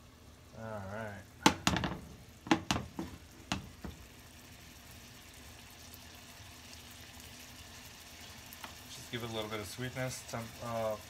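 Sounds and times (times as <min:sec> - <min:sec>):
sauce sizzling in pan: 0:00.0 - 0:11.0
wooden spatula knocking on pan: 0:01.4 - 0:04.1.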